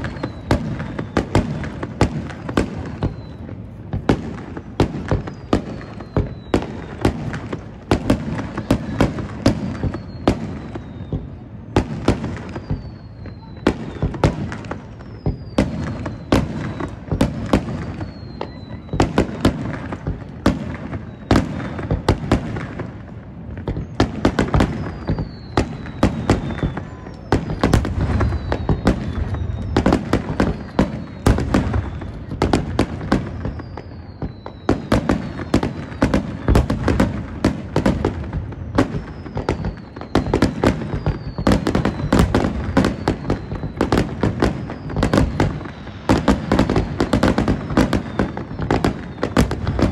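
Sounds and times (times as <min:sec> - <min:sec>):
falling firework whistles: 0:00.0 - 0:49.9
fireworks bangs and crackles: 0:00.0 - 0:49.9
low fireworks booms: 0:00.0 - 0:49.9.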